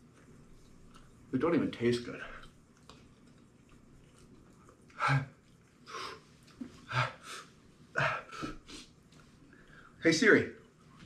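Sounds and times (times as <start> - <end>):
man huffing and gasping: 6.8 - 8.9
low grunt: 8.0 - 8.6.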